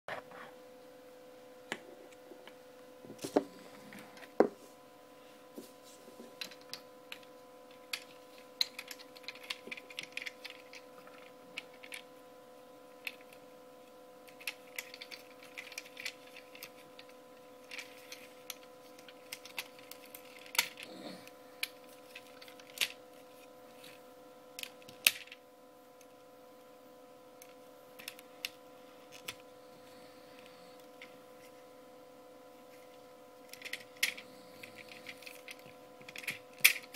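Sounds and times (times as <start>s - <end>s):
steady hum: 0.1s - 36.9s
plastic toy clicks and knocks: 33.5s - 36.9s.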